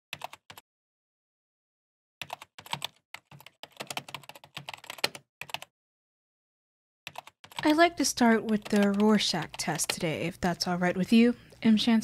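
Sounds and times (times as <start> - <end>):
keyboard typing: 0.1 - 0.6, 2.2 - 5.7, 7.1 - 10.2.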